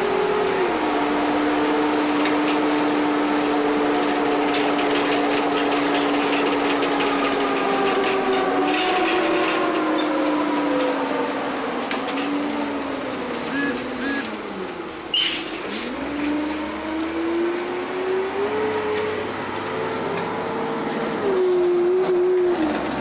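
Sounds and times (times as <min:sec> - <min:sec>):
bus drivetrain drone: 0:00.0 - 0:23.0
road noise: 0:11.4 - 0:23.0
held whine: 0:13.4 - 0:14.7.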